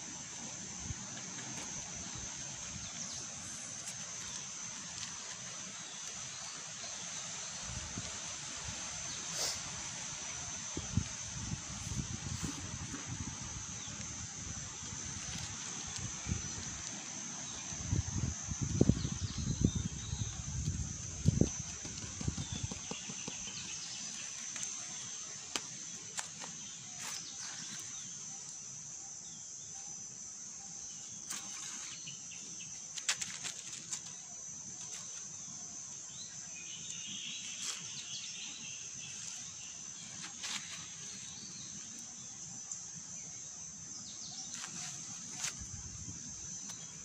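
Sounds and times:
high-pitched insect drone: 0.0s - 47.0s
rustling clicks in undergrowth: 25.5s - 28.6s, 32.9s - 35.4s.

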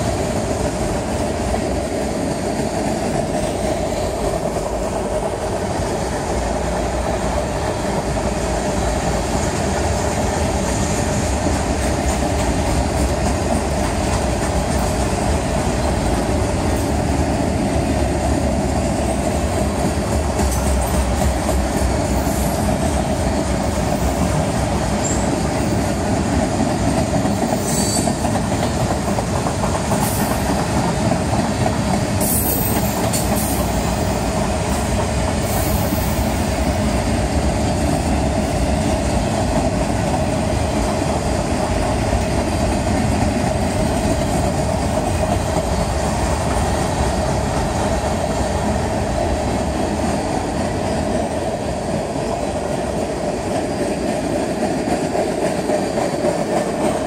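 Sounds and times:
train wheels rumbling on rails: 0.0s - 57.0s
high wheel squeals: 25.0s - 25.3s, 27.6s - 28.2s.

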